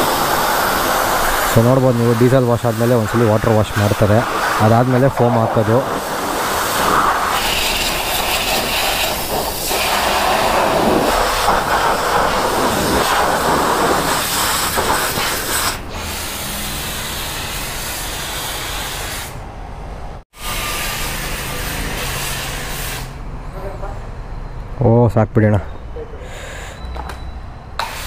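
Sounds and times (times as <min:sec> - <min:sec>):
pressure washer spraying water: 0:00.0 - 0:19.4, 0:20.4 - 0:23.2, 0:27.8 - 0:28.0.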